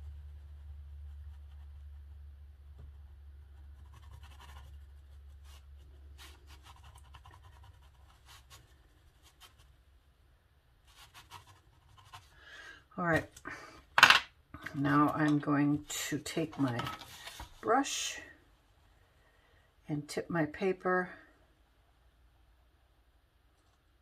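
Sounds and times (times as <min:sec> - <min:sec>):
pencil scratching on rough paper: 0:00.0 - 0:09.7, 0:10.9 - 0:12.4.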